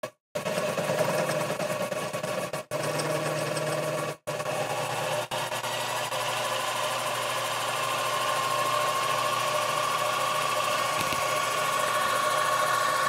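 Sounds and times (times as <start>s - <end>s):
milling machine motor whine: 2.7s - 13.0s.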